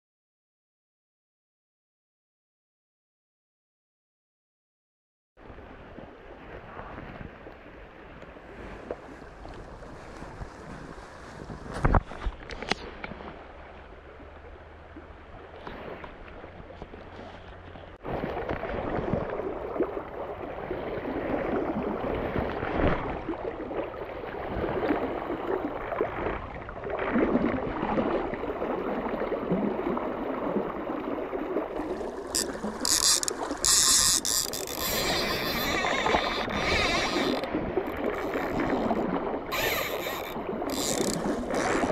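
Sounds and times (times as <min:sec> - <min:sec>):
river water rushing: 0:31.7 - 0:41.9
fishing reel ratchet screaming: 0:32.4 - 0:38.6, 0:39.5 - 0:41.3.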